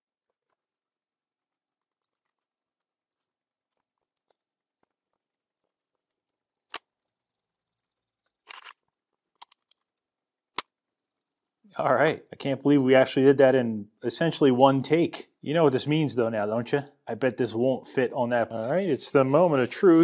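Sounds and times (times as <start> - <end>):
small metal clicks and scrapes: 1.8 - 10.7.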